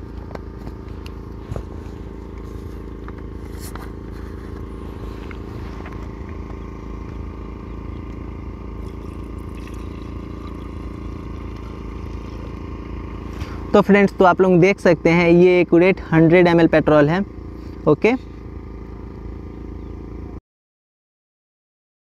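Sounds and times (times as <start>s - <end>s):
low mechanical hum: 0.0s - 20.4s
petrol pouring into bottle: 8.8s - 12.5s.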